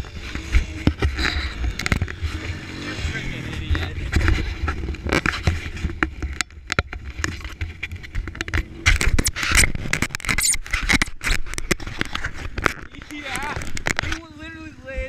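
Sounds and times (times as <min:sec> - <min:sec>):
hand rubbing on camera housing: 0:07.3 - 0:14.1.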